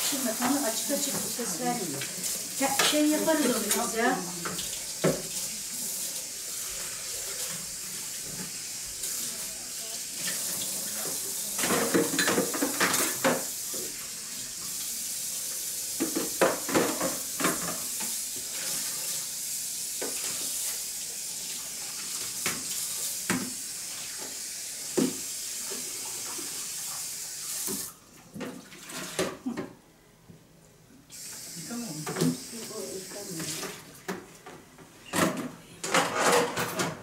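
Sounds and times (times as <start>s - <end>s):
tap running into sink: 0.4s - 5.5s, 15.9s - 18.5s, 20.0s - 20.6s, 22.1s - 26.6s, 27.6s - 29.7s, 31.1s - 32.7s
dishes and pots clattering: 11.6s - 13.5s, 16.0s - 18.1s, 33.6s - 37.0s.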